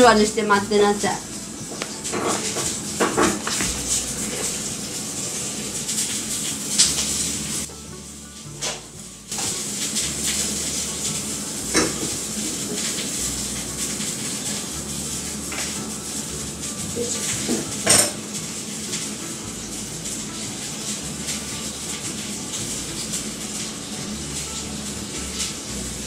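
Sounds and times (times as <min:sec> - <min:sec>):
steady hiss: 0:00.0 - 0:26.0
dishes and cutlery clinking: 0:01.7 - 0:04.7, 0:11.7 - 0:13.1, 0:17.0 - 0:18.4.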